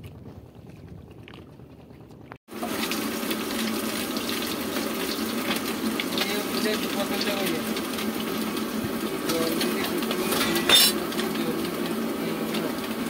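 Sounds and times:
wind: 0:00.0 - 0:02.4
fish sizzling in hot oil: 0:02.5 - 0:13.0.

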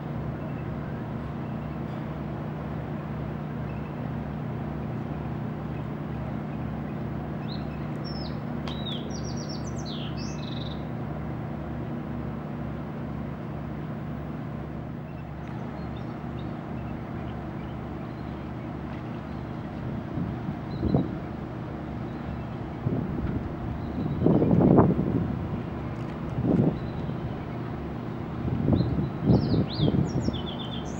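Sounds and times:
boat engine idling: 0:00.0 - 0:30.9
bird chirping: 0:05.2 - 0:10.9, 0:23.7 - 0:24.6, 0:26.7 - 0:27.7, 0:28.7 - 0:30.9.

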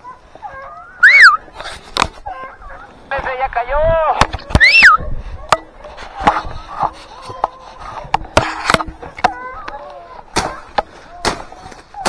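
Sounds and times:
dogs yelping: 0:00.0 - 0:01.6, 0:02.2 - 0:03.1, 0:04.3 - 0:08.1.

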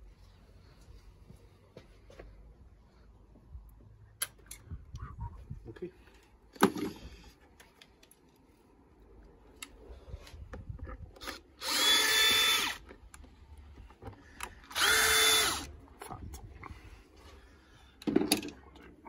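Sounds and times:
drill-driver spinning: 0:11.2 - 0:13.1, 0:14.5 - 0:15.7.

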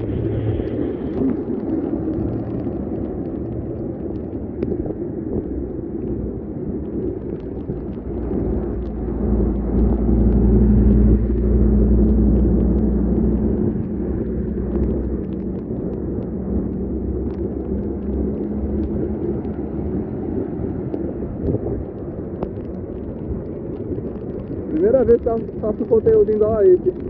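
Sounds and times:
engine rumble: 0:00.0 - 0:27.0
heavy rain: 0:00.0 - 0:27.0
vehicles driving through floodwater: 0:00.0 - 0:27.0.

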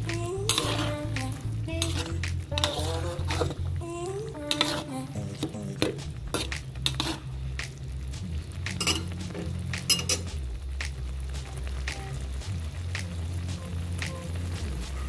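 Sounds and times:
metal ladle clinking on wok: 0:08.8 - 0:09.2, 0:09.9 - 0:10.3.

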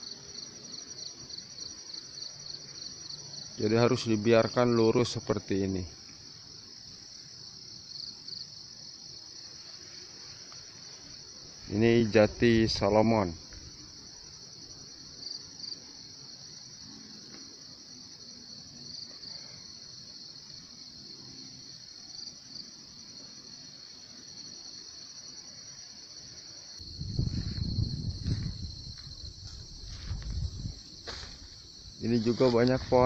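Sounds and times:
insects droning: 0:00.0 - 0:33.0
low rumbling on microphone: 0:26.8 - 0:33.0.

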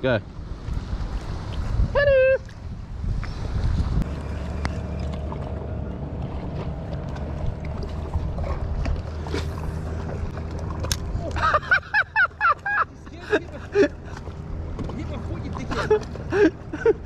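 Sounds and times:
wind rumble on microphone: 0:00.0 - 0:11.9.

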